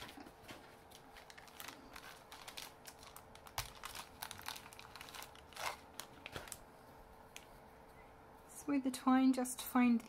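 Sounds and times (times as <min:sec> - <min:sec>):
plastic wrapper crinkling: 0:00.0 - 0:06.7.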